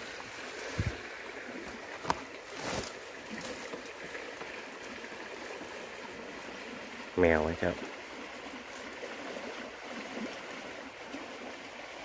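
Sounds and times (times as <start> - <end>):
running water: 0.0 - 12.0
plastic tarp rustling: 2.0 - 3.9.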